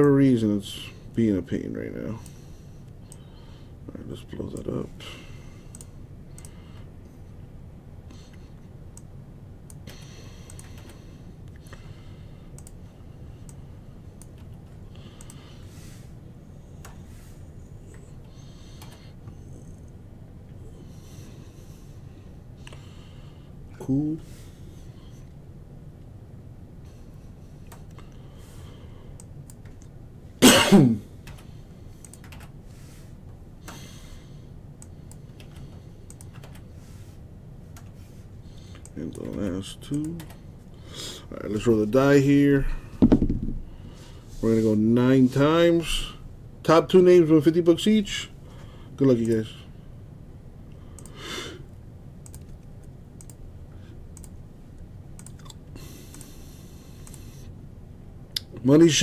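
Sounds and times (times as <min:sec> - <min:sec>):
low steady hum: 0:00.0 - 0:59.0
keyboard and mouse clicks: 0:09.7 - 0:11.0, 0:31.2 - 0:32.6, 0:34.8 - 0:36.6, 0:52.2 - 0:53.4, 0:55.2 - 0:56.3
man coughing: 0:30.4 - 0:31.1.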